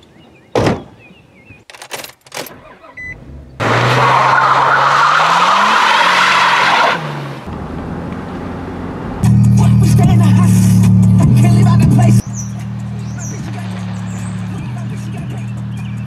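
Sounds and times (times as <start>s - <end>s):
car doors slamming: 0.5s - 1.0s
engine revving hard: 3.2s - 7.5s, 8.6s - 16.0s.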